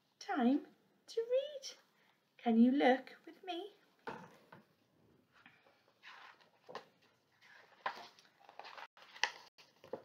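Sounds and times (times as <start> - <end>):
paper pages rustling: 5.6 - 10.0
page flapping: 6.0 - 10.0.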